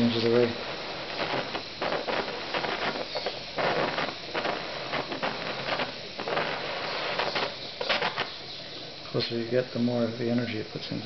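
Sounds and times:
crackles: 0.0s - 11.0s
torch flame hissing: 0.0s - 11.0s.

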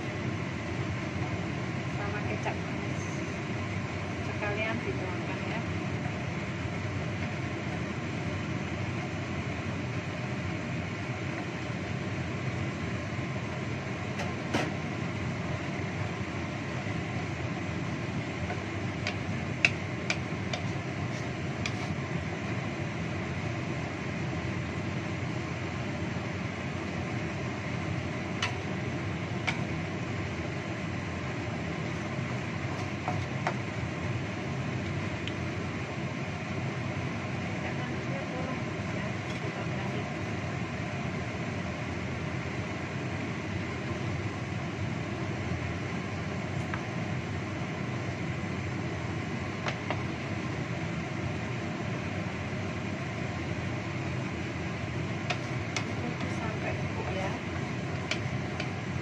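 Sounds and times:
sauce simmering hiss: 0.0s - 59.0s.

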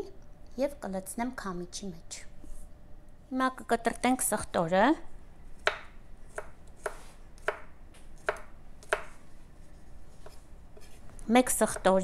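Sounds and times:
knife cutting on wooden board: 5.6s - 11.1s.

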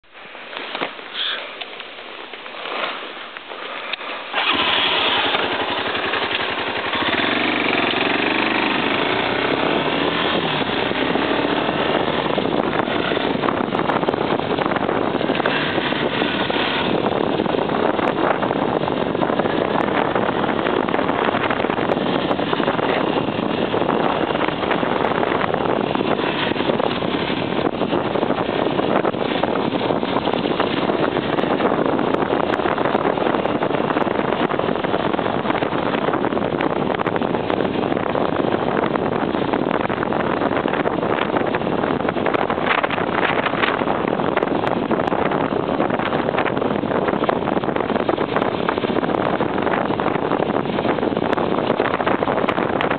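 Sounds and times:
wind rush on microphone: 0.0s - 52.9s
motorcycle riding on gravel: 0.2s - 52.9s.

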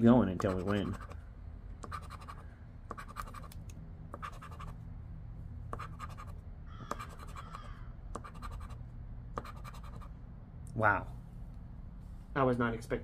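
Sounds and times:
chip scraping lottery ticket: 0.3s - 1.2s, 1.8s - 3.6s.

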